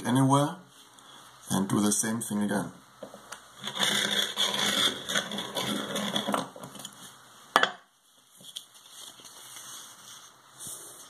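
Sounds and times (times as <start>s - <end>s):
cutter blade scraping through fabric: 3.6s - 6.4s
fabric rustling: 8.2s - 11.0s.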